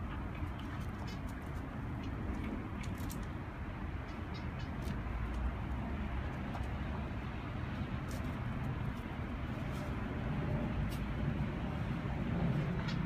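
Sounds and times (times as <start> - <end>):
distant city traffic rumble: 0.0 - 13.0.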